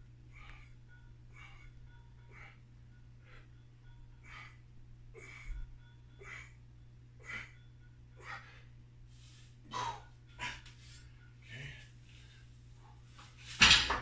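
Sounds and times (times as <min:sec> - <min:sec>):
steady low hum: 0:00.0 - 0:14.0
man breathing forcefully: 0:00.3 - 0:03.6, 0:04.2 - 0:06.6, 0:08.2 - 0:12.6.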